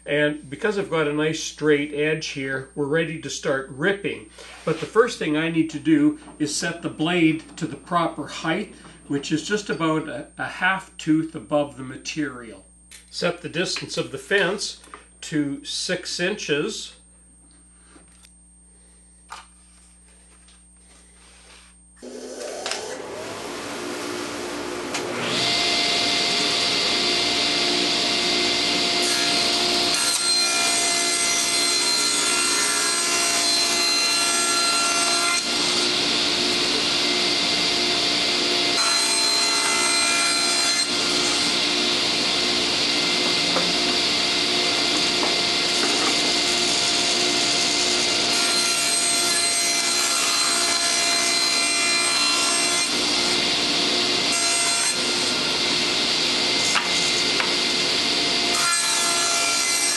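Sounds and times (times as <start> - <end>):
table saw cutting plywood: 22.0 - 59.9.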